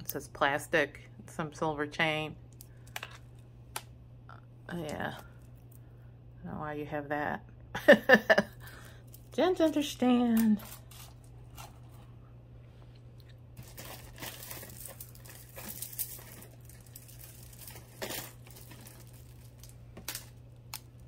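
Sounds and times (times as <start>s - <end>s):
jewelry clicking and clinking: 9.0s - 11.9s, 13.6s - 21.0s
rustling and crinkling: 9.0s - 21.0s.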